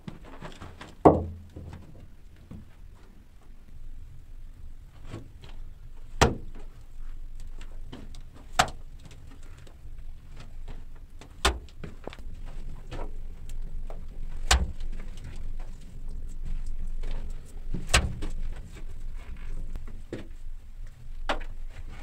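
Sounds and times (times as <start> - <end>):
dull thump: 1.0 - 1.8.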